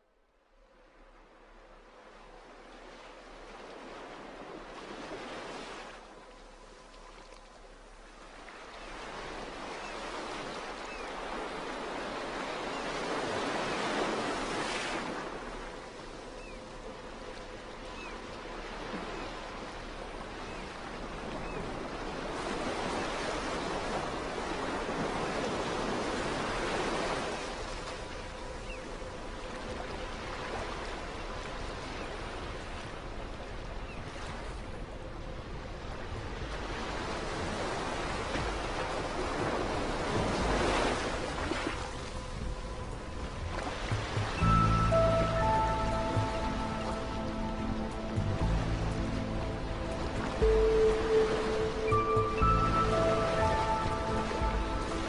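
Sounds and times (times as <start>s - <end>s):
ocean waves surging: 36.5s - 55.0s.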